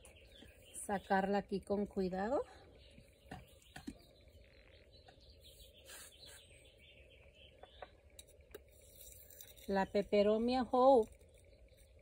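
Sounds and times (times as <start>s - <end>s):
faint bird chirps: 2.4s - 8.2s.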